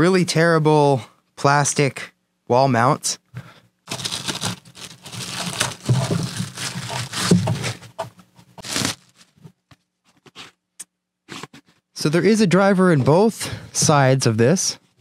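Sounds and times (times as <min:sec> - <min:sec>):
plastic bags crinkling and tearing: 0:03.9 - 0:07.8, 0:08.6 - 0:09.4.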